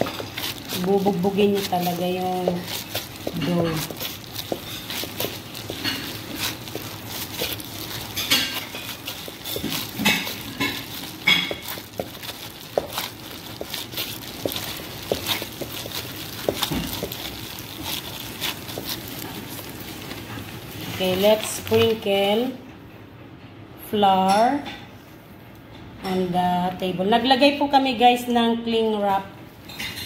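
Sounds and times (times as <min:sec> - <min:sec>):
dough slapping in metal bowl: 0:00.0 - 0:20.2.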